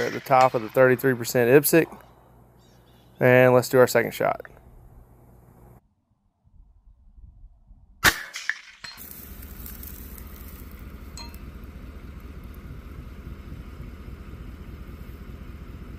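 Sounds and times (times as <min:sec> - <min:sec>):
steady low hum: 0:00.0 - 0:05.8, 0:09.0 - 0:15.9
suppressed rifle shot: 0:08.0 - 0:08.8
bullet clanging on steel target: 0:08.2 - 0:09.1.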